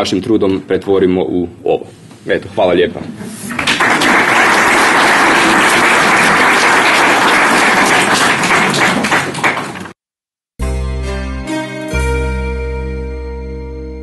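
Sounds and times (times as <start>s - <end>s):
audience applauding: 3.5s - 10.0s.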